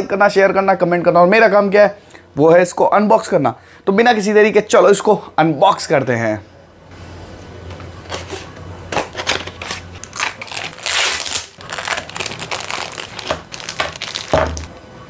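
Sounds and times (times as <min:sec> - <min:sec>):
plastic bag crinkling: 0:09.0 - 0:14.8.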